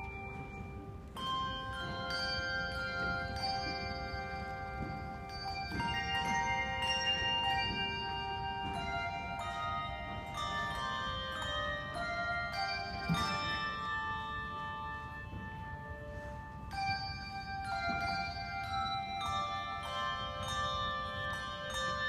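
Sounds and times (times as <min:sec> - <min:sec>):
handbell choir playing: 0:00.0 - 0:22.0.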